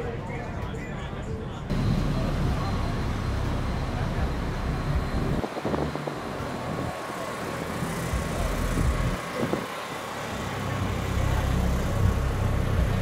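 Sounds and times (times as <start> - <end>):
vehicle engine: 1.7 - 13.0
wind buffeting microphone: 4.9 - 7.0.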